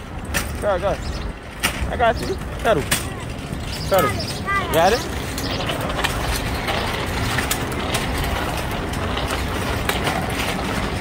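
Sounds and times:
bike wheels clicking and rattling: 0.0 - 11.0
street traffic rumble: 0.0 - 11.0.

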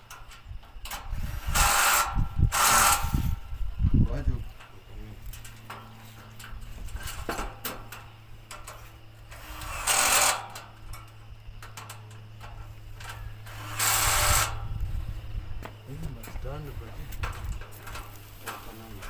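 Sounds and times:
steady low hum: 0.0 - 19.0
power drill on metal: 0.8 - 3.4, 9.3 - 10.8, 13.0 - 14.7.

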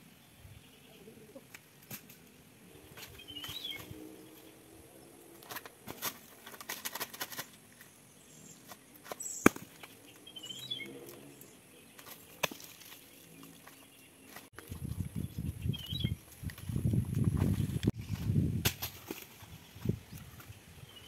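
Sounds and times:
bird chirping: 2.6 - 5.2, 7.8 - 16.9, 19.4 - 21.0
hands and feet scraping palm trunk: 5.4 - 20.6
sharp crack: 9.3 - 9.9.

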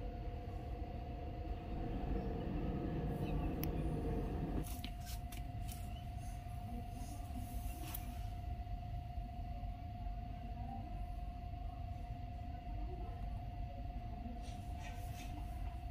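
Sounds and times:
low mechanical rumble: 0.0 - 15.9
steady hum: 0.0 - 15.9.

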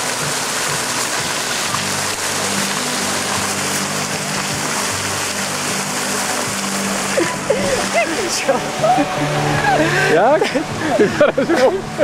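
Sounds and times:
fountain water splashing: 0.0 - 12.0
low sustained tones: 0.0 - 12.0.

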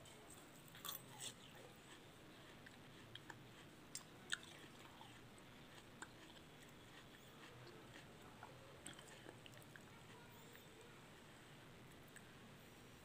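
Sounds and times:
parakeet beak clicking and chewing: 0.8 - 10.9.

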